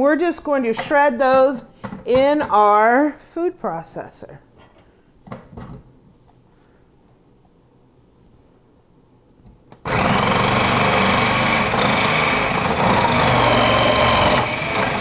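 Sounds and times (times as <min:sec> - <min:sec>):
food processor motor grating: 0:09.9 - 0:15.0.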